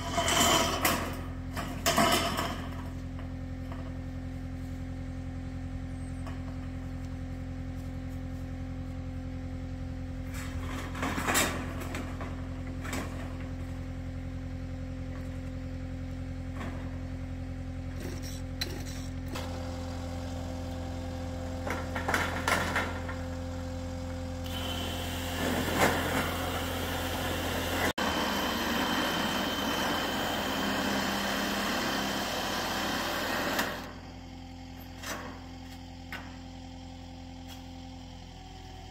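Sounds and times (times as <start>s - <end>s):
diesel engine running: 0.0s - 38.9s
saw cutting steel panel: 24.4s - 33.9s.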